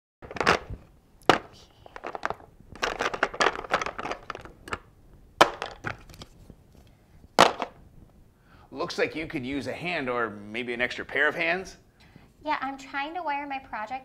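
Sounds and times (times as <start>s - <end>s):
screwdrivers rattling in plastic organizer: 2.0s - 4.8s.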